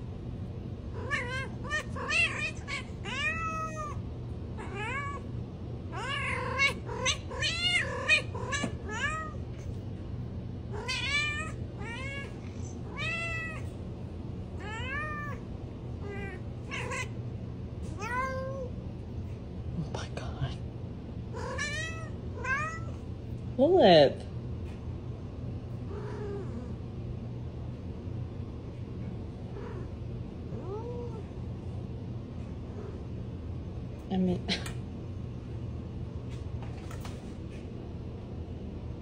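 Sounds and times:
cat meowing: 0:00.9 - 0:04.0, 0:04.6 - 0:05.3, 0:05.9 - 0:09.4, 0:10.7 - 0:13.7, 0:14.6 - 0:15.4, 0:16.0 - 0:17.2, 0:18.0 - 0:18.7, 0:21.4 - 0:23.0.

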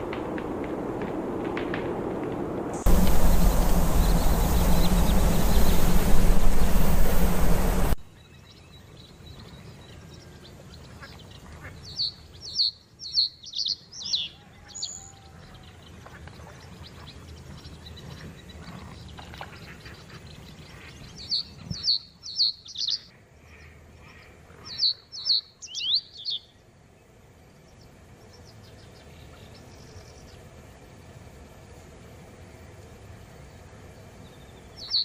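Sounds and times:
loud rushing noise: 0:00.0 - 0:08.0.

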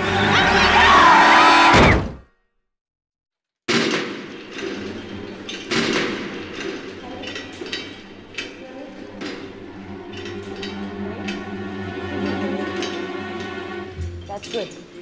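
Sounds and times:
loud thud: 0:01.7 - 0:02.3
knocks and clatters: 0:03.7 - 0:11.5.

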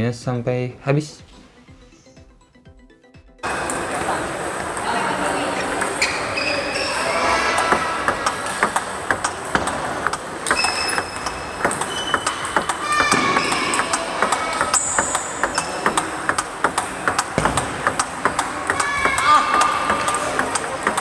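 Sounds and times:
shoe squeaks: 0:05.9 - 0:08.0, 0:10.4 - 0:16.3
table tennis ball clicking: 0:06.8 - 0:21.0.

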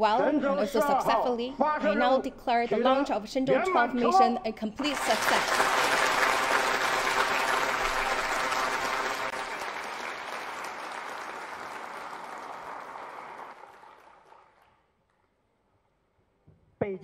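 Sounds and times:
crowd applauding: 0:04.8 - 0:14.8.

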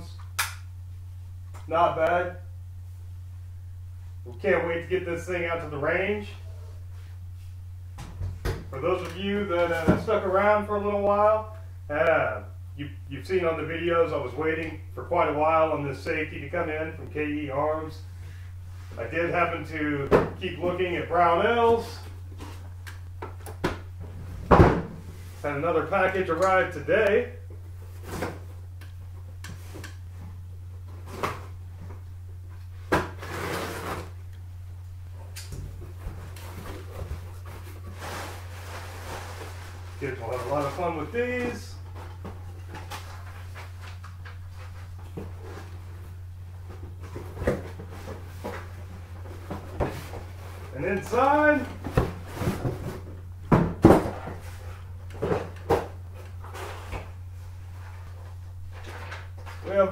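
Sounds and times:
steady low hum: 0:00.0 - 0:59.9
cardboard rustling and thumping: 0:23.3 - 0:25.2, 0:35.6 - 0:57.2.

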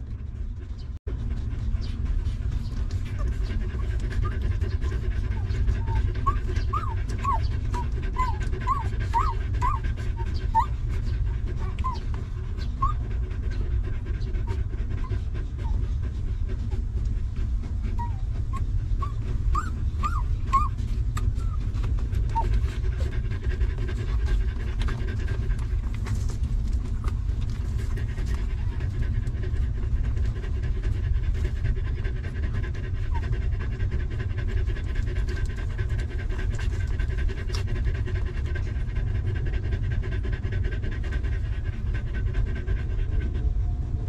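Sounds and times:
dog panting: 0:00.0 - 0:44.0
puppies squeaking: 0:04.3 - 0:10.8, 0:11.6 - 0:13.1, 0:17.9 - 0:22.6.

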